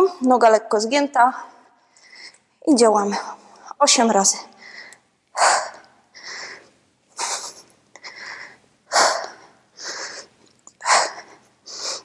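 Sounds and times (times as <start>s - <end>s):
woman inhaling: 4.6s - 12.0s.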